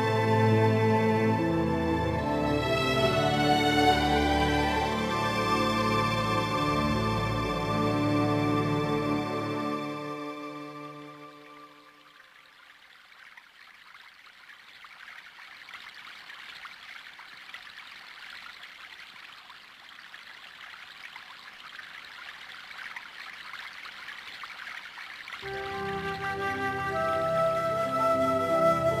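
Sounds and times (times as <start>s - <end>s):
soft music: 0.0s - 12.1s, 25.4s - 29.0s
running water trickling: 0.0s - 29.0s.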